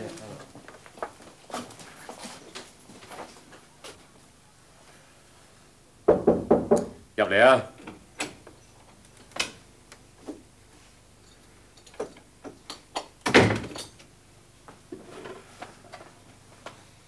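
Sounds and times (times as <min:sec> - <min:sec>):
door shutting with a thunk: 0:13.2 - 0:13.8.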